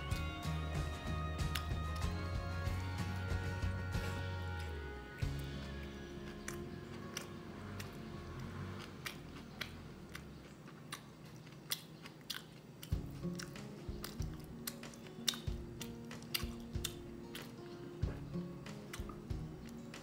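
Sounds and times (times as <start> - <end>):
quiet background music: 0.0 - 20.0
person chewing crunchy food: 1.4 - 20.0.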